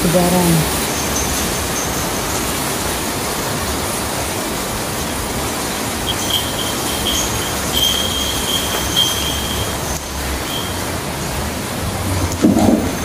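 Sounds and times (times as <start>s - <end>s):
thin high steady tone: 0.0s - 4.2s, 4.8s - 11.5s
steady rain: 0.0s - 13.0s.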